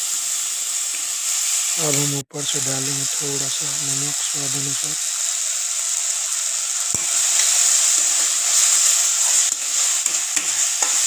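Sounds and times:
vegetables sizzling in oil: 0:00.0 - 0:11.0
spatula scraping a pan: 0:07.0 - 0:11.0.

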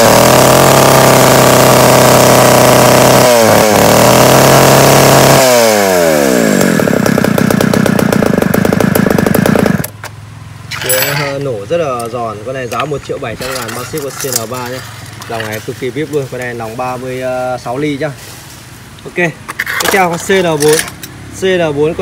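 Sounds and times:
chainsaw engine revving and idling: 0:00.0 - 0:09.9.

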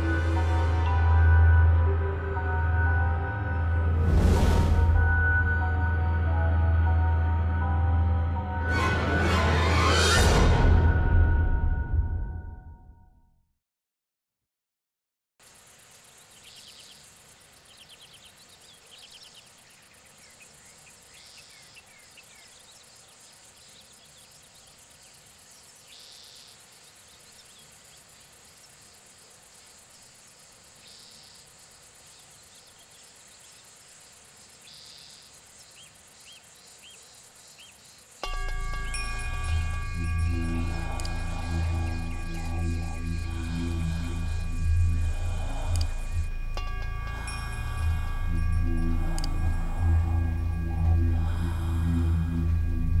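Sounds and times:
insect buzz: 0:15.4 - 0:53.0
insects chirring: 0:15.4 - 0:53.0
short insect chirps: 0:15.4 - 0:53.0.

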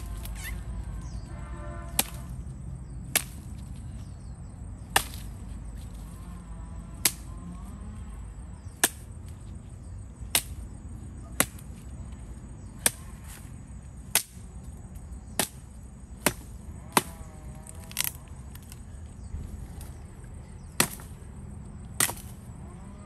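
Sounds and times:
firewood being chopped: 0:01.9 - 0:02.3, 0:03.0 - 0:04.1, 0:04.8 - 0:06.0, 0:07.0 - 0:07.3, 0:08.6 - 0:09.4, 0:10.2 - 0:10.7, 0:11.3 - 0:11.8, 0:12.7 - 0:14.5, 0:15.3 - 0:18.9, 0:20.6 - 0:21.2, 0:21.9 - 0:22.5.

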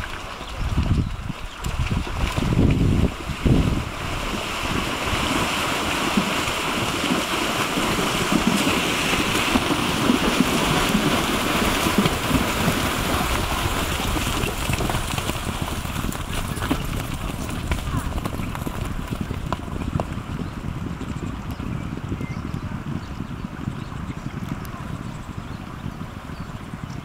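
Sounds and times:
horses splashing through water: 0:00.0 - 0:22.6
wind buffeting microphone: 0:00.0 - 0:27.0
stream rushing: 0:01.3 - 0:18.2.

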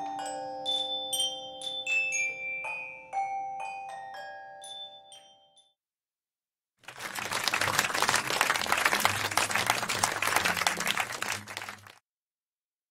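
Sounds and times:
xylophones and glockenspiels ringing: 0:00.0 - 0:05.8
audience applauding: 0:06.8 - 0:12.0.

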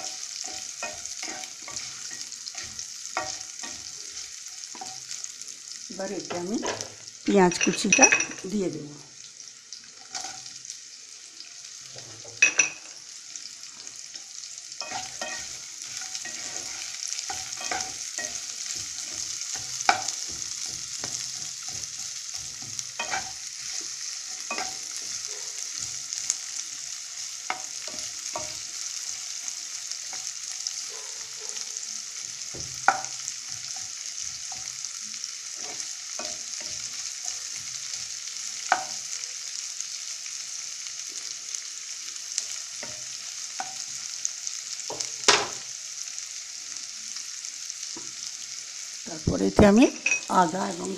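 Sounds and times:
spatula scraping a pan: 0:00.0 - 0:05.4, 0:10.0 - 0:10.6, 0:13.8 - 0:30.9, 0:35.5 - 0:39.0
food sizzling in oil: 0:00.0 - 0:50.9
spatula knocking on pan: 0:16.1 - 0:25.2, 0:32.5 - 0:33.2.

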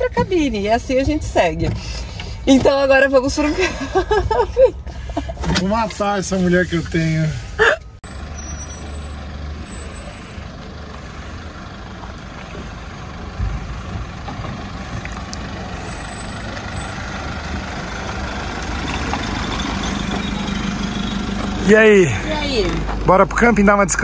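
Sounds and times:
vehicle engine and road noise: 0:00.0 - 0:24.0.

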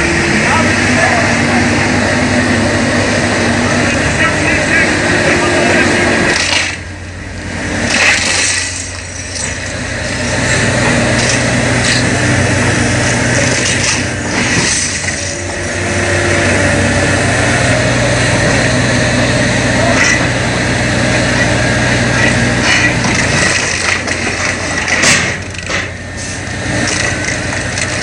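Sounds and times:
diesel excavator engines running: 0:00.0 - 0:28.0.

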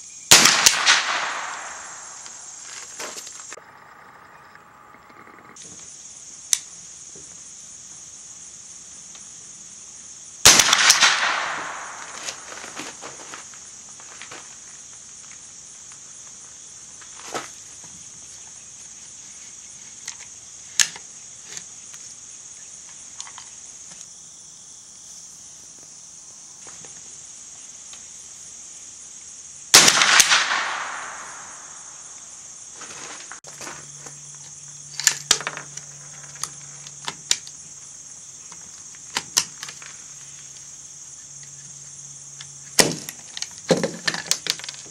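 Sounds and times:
high insect buzz: 0:00.0 - 0:44.9
rifle shots with echo: 0:00.3 - 0:02.5, 0:10.4 - 0:12.5, 0:29.7 - 0:32.0.

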